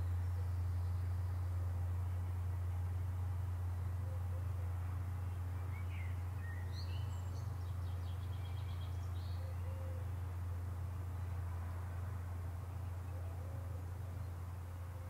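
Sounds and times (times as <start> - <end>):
bird singing: 0.0 - 2.9, 3.8 - 11.4.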